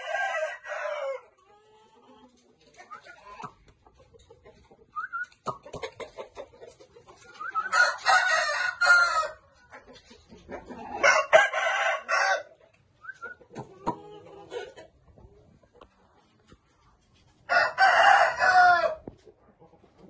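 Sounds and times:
rooster crowing: 0.0s - 1.2s, 7.6s - 9.4s, 11.0s - 12.5s, 17.5s - 19.0s.

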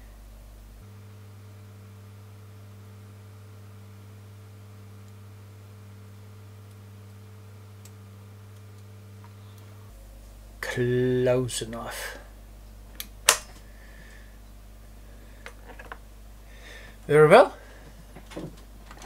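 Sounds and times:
faint higher buzz: 0.0s - 12.5s
electrical mains hum: 0.0s - 19.0s.

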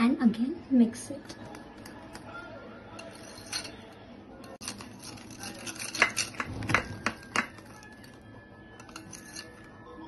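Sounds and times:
wire whisk clinking against bowl: 3.0s - 3.8s, 4.4s - 8.1s, 8.8s - 9.7s.

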